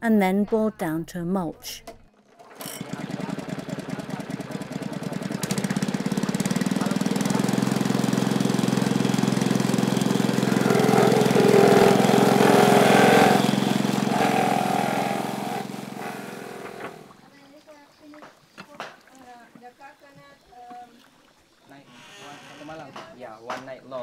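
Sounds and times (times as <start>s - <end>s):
coconut shredder engine throbbing: 2.3s - 17.2s.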